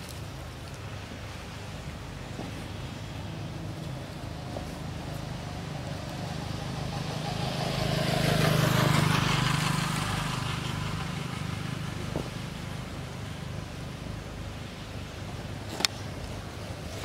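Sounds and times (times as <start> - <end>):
vehicle passing by: 2.8 - 14.0.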